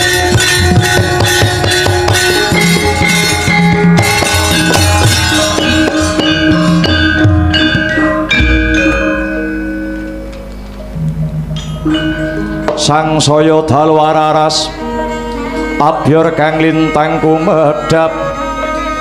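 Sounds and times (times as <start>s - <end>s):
drum strokes: 0.0s - 13.3s
gamelan ensemble playing: 0.0s - 19.0s
deep gong stroke: 6.0s - 12.8s.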